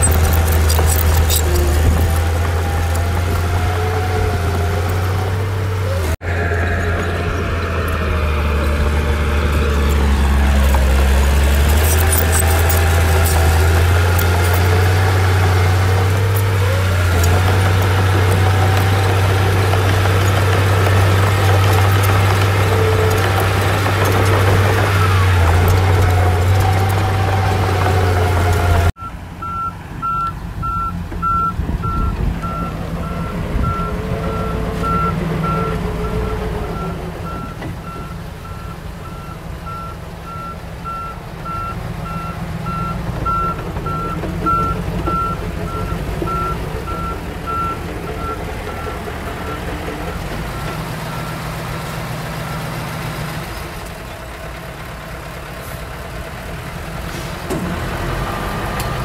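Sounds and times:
heavy diesel engine running: 0.0 - 59.0
reversing alarm beeping: 29.0 - 51.4.

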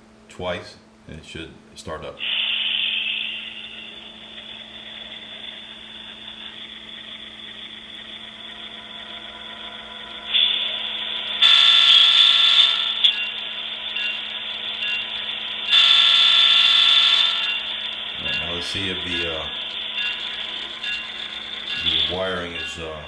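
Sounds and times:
diesel engine start-up sounds: 2.2 - 13.2.

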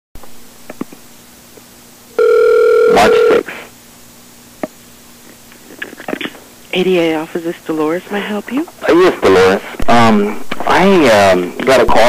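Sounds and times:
faint low line hum: 0.2 - 12.0
telephone ringback tone: 2.2 - 3.4.

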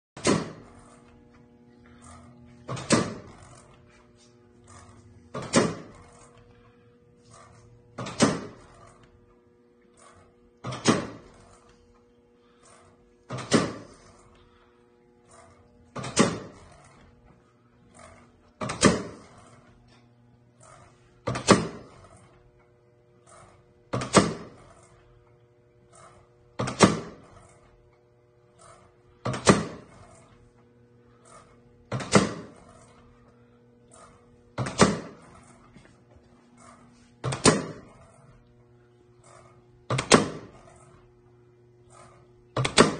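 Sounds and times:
pneumatic clack and air hiss: 0.2 - 1.2, 1.8 - 9.2, 9.9 - 14.6, 15.2 - 25.3, 25.9 - 27.8, 28.5 - 38.5, 39.2 - 41.1, 41.9 - 42.9
steady low hum: 0.2 - 42.9.

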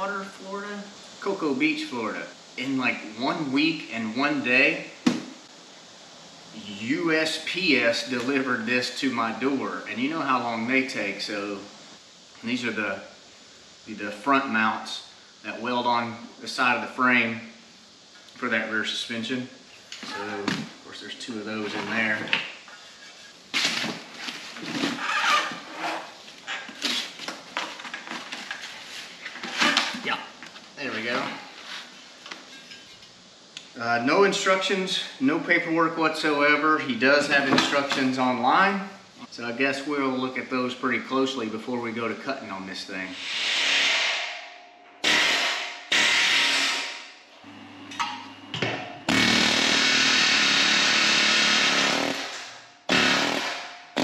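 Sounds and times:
power tool on steel: 43.2 - 47.6, 49.1 - 54.0.

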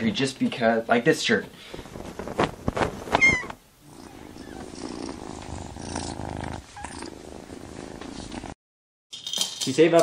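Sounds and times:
kitten purring: 3.2 - 8.6.

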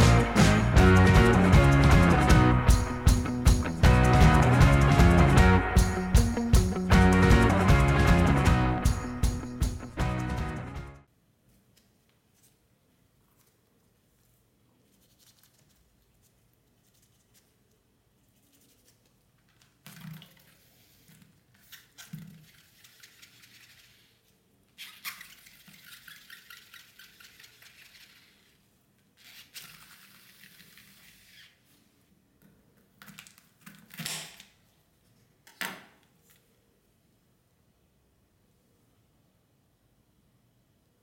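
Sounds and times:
gourd rustling and scraping on pan: 20.5 - 24.4.

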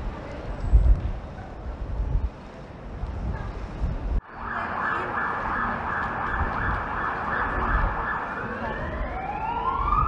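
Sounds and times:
emergency vehicle siren: 4.2 - 10.0.

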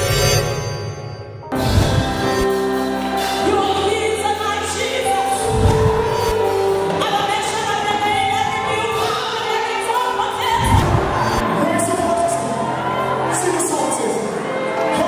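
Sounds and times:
instrumental backing with bass: 0.0 - 11.6.

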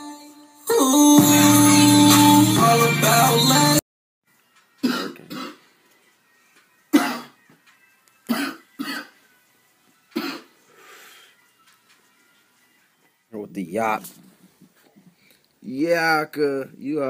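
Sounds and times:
man coughing: 4.8 - 5.6, 7.0 - 7.4
breathy exhale: 10.7 - 11.4.

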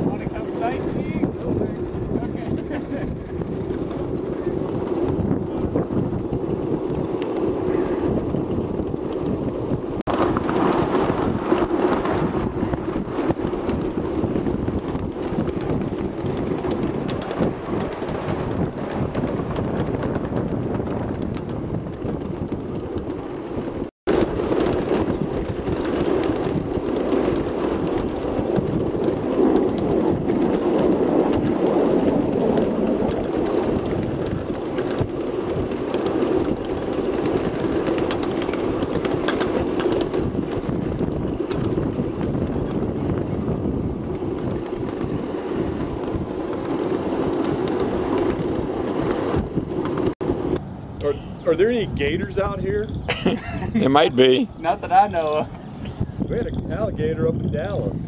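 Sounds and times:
ride-on train rumbling on track: 0.0 - 58.0
wind buffeting microphone: 0.0 - 58.0.

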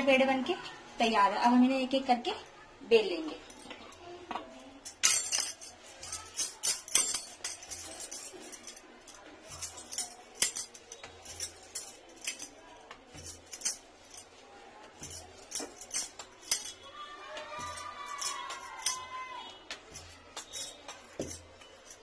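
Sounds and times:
bangles clinking: 4.7 - 22.0.

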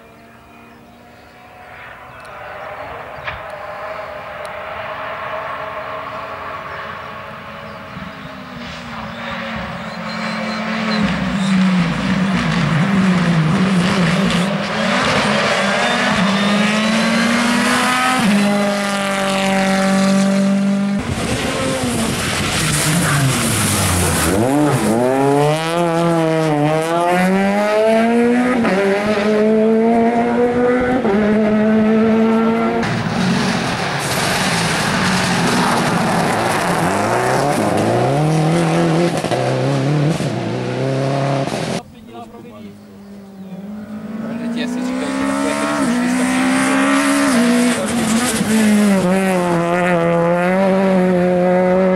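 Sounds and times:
rally car engines revving: 0.0 - 51.9
car braking hard: 8.6 - 27.3, 32.7 - 41.9.

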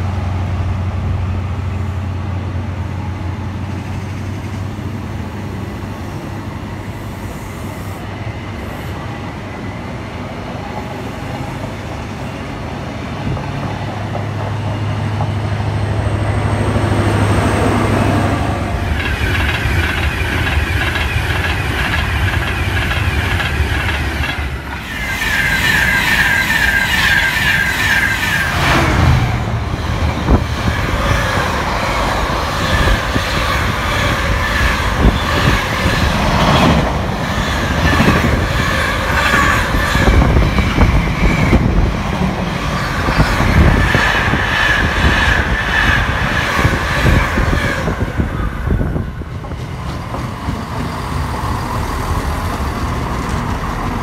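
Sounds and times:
diesel train passing: 0.0 - 54.0
passenger train passing: 0.0 - 54.0
train wheels clattering: 18.8 - 48.3, 49.3 - 54.0.

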